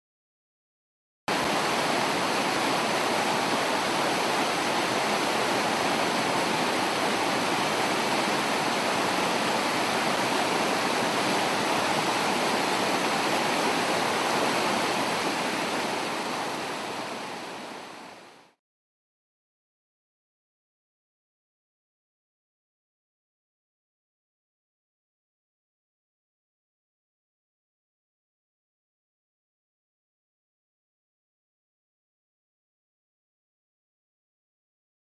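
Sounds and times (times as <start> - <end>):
river rapids rushing: 1.3 - 18.5.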